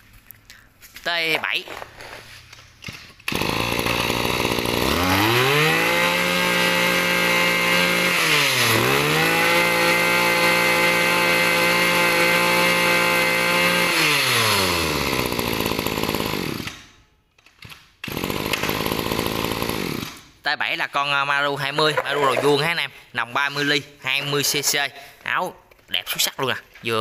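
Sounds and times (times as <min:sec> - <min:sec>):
brush cutter engine revving: 0:03.2 - 0:16.8, 0:18.0 - 0:20.3.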